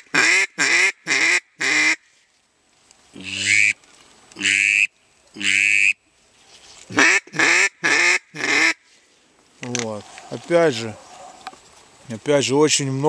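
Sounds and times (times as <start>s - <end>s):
duck call notes: 0.0s - 2.0s, 3.2s - 3.8s, 4.4s - 6.0s, 6.9s - 8.8s.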